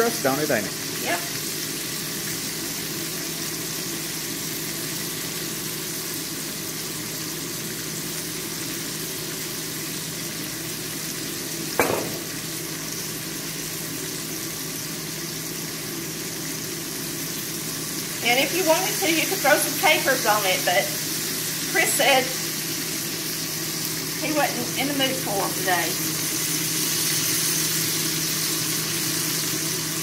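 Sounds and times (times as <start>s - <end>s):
fish sizzling in oil: 0.0s - 30.0s
sharp knock: 11.8s - 12.4s.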